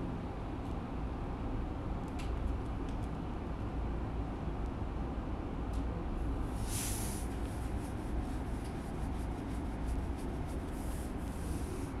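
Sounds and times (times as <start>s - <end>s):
short hiss: 6.6s - 7.5s.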